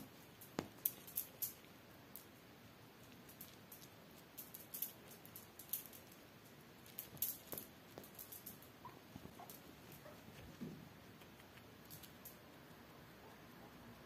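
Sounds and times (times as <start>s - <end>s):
kitten claws scrabbling on fabric: 6.8s - 12.2s.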